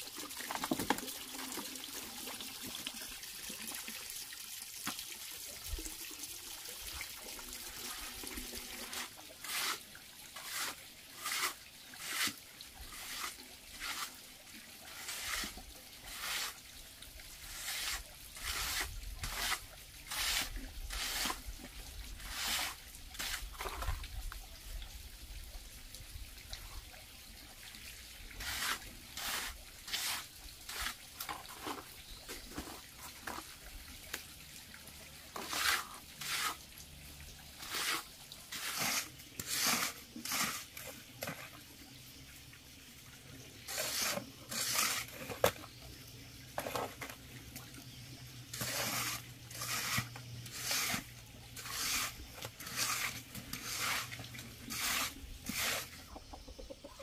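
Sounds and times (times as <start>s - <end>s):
trowel scraping wet cement: 8.7s - 14.2s, 14.9s - 16.6s, 17.4s - 21.5s, 22.2s - 24.0s, 28.4s - 33.4s, 35.3s - 36.6s, 37.6s - 41.4s, 43.6s - 45.6s, 48.4s - 56.2s.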